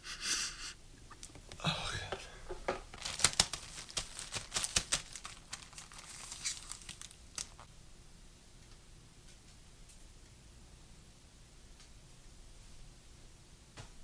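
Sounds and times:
plastic bag crinkling: 0:02.8 - 0:07.7.

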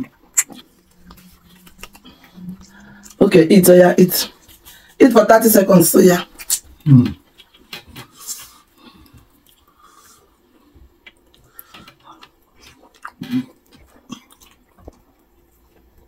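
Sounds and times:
wet chewing: 0:00.0 - 0:03.2, 0:06.4 - 0:16.0
mouth clicks: 0:00.3 - 0:03.2.

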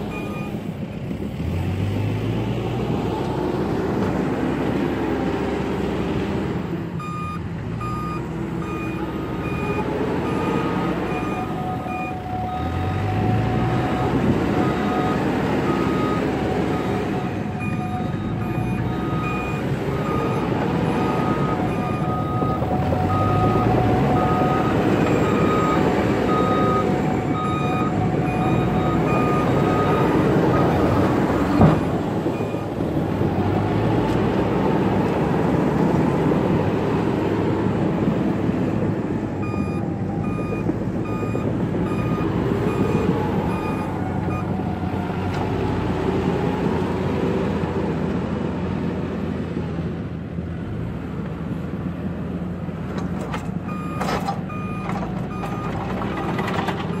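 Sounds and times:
diesel engine under load: 0:00.0 - 0:57.0
reverse alarm beeping: 0:39.4 - 0:44.5.

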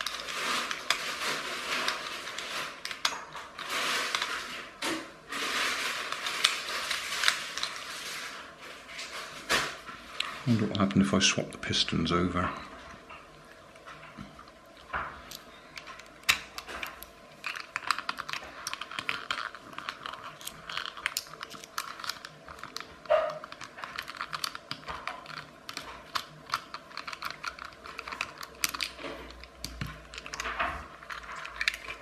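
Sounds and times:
plastic parts clicking and tapping: 0:14.9 - 0:32.0.

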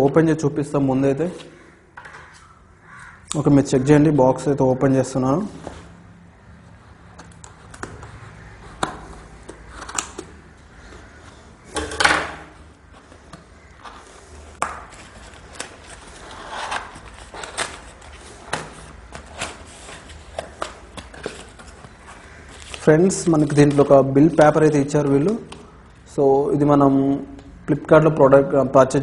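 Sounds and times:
cardboard flaps rustling: 0:12.9 - 0:23.9
cardboard scraping rasp: 0:15.0 - 0:22.7.

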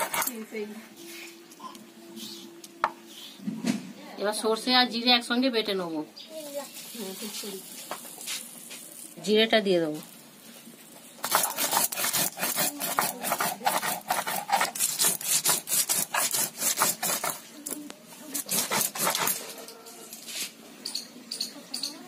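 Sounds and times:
stone grinding on stone: 0:00.0 - 0:00.4, 0:11.2 - 0:17.5, 0:18.3 - 0:19.6.

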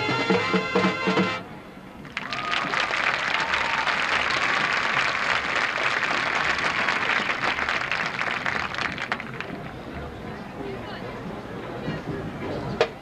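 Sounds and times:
crowd applauding: 0:02.0 - 0:09.8.

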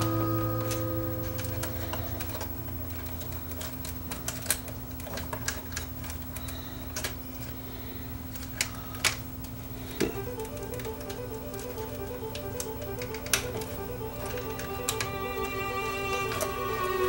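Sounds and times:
steady low hum: 0:00.0 - 0:17.0
plastic parts clicking and tapping: 0:00.6 - 0:07.6.

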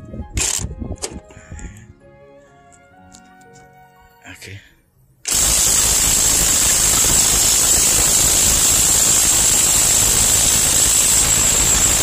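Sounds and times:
impact wrench rattling: 0:05.3 - 0:12.0.

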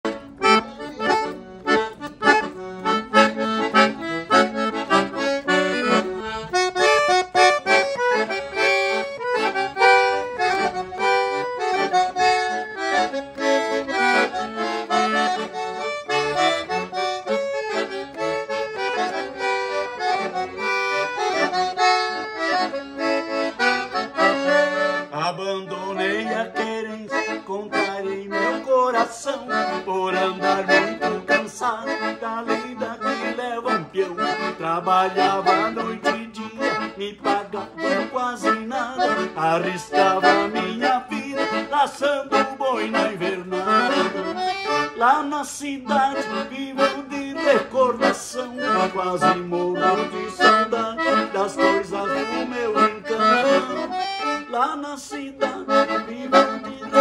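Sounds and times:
piano accordion playing: 0:00.0 - 0:57.0.

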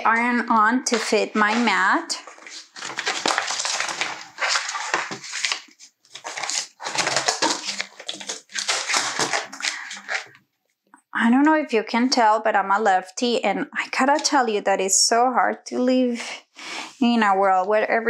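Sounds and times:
foil crinkling and rustling: 0:00.9 - 0:10.4.

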